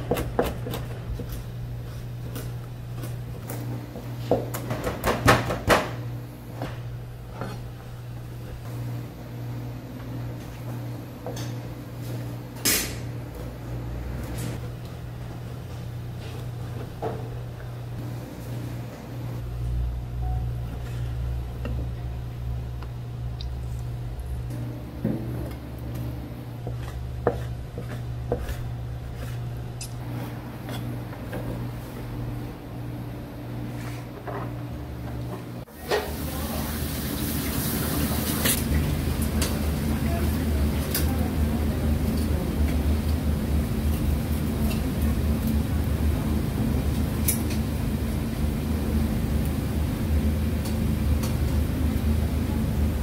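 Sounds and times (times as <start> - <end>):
knife chopping on cutting board: 0.0 - 1.4, 26.6 - 29.5
steady low hum: 0.0 - 35.7, 38.4 - 53.0.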